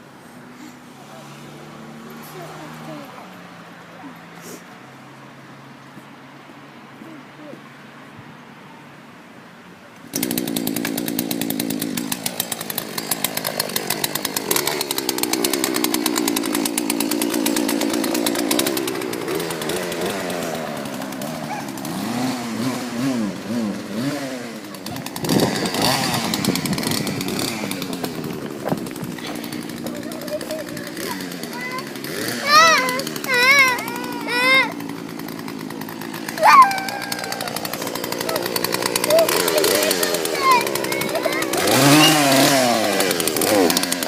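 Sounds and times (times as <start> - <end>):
chainsaw engine revving: 0.6 - 3.7, 10.1 - 44.0.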